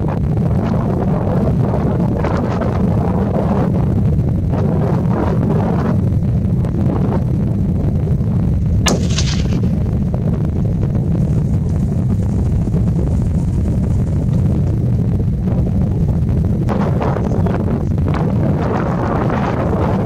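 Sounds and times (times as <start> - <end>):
wind rumble on microphone: 0.0 - 20.0
rifle shot: 8.9 - 10.2.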